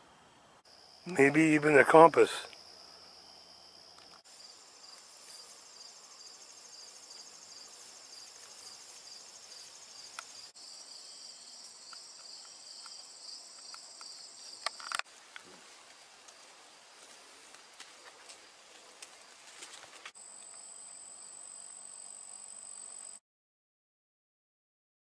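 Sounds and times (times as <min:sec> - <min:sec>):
insects trilling: 0:00.6 - 0:17.0.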